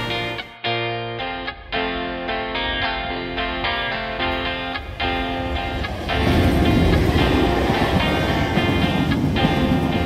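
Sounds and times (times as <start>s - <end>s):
guitar music: 0.0s - 10.0s
diesel locomotive passing: 3.3s - 10.0s.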